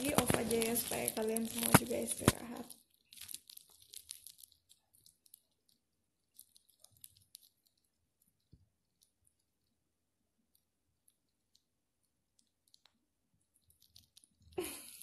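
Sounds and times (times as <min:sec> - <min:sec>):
faint clicks: 0:10.5 - 0:15.0.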